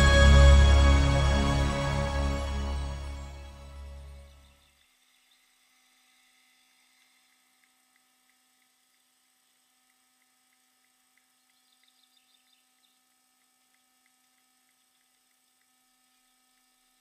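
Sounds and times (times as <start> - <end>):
faint steady hum: 0.0 - 17.0
faint ticks: 5.6 - 17.0.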